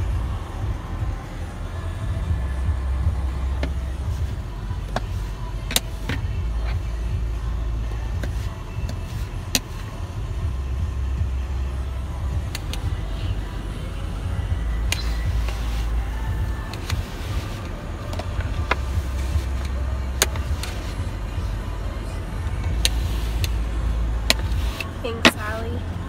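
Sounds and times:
steady low rumble: 0.0s - 26.0s
snow brush sweeping car window: 15.0s - 16.2s, 16.8s - 21.6s, 22.9s - 23.5s, 24.3s - 25.6s.

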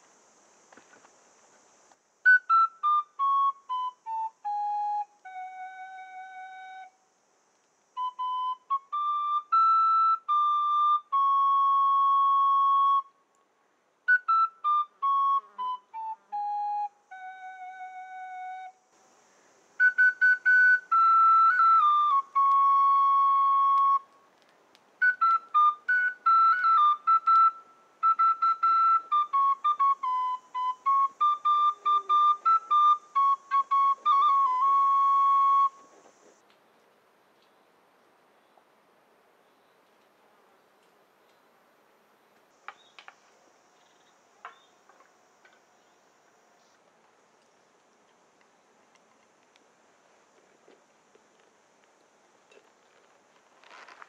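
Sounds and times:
flute melody: 2.2s - 7.0s, 8.0s - 13.2s, 14.1s - 18.9s, 19.8s - 24.3s, 25.0s - 36.4s.

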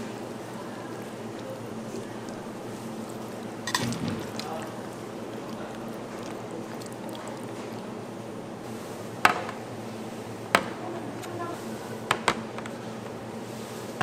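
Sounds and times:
kitchen hum: 0.0s - 14.0s
plastic tubs clacking on tray: 3.7s - 4.8s.

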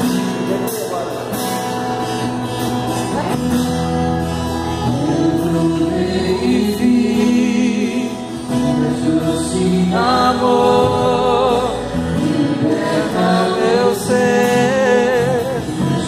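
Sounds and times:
keyboard accompaniment: 0.0s - 16.0s
steady bass line: 0.0s - 16.0s
choir singing: 4.8s - 16.0s.

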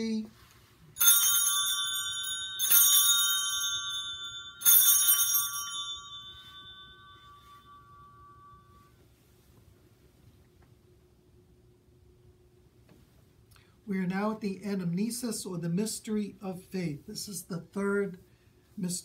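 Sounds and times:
altar bells ringing: 0.9s - 9.0s.

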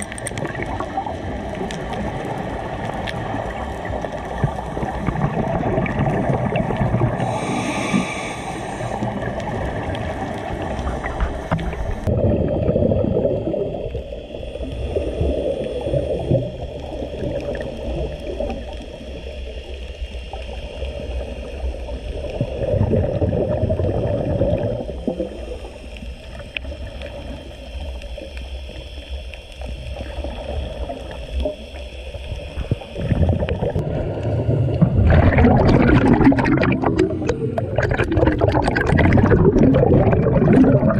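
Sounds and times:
underwater regulator breathing: 7.1s - 9.6s.

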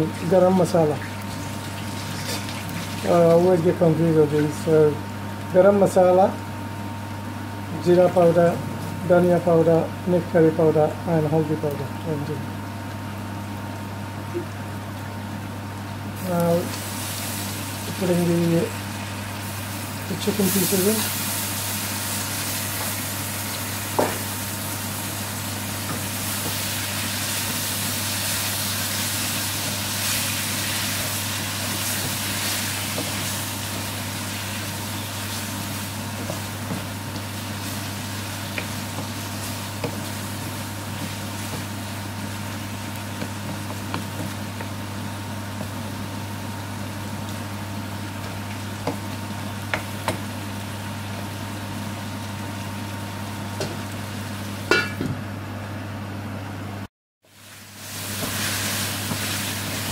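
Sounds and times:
steady low hum: 0.0s - 56.9s
chicken and onions sizzling: 15.1s - 55.0s, 57.3s - 59.9s
wooden spoon knocking on pan: 38.5s - 41.8s, 43.2s - 44.8s, 48.8s - 49.1s, 49.7s - 50.3s.

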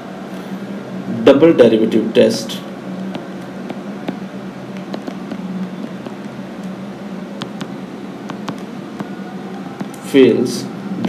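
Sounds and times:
steady background hum: 0.0s - 11.0s.

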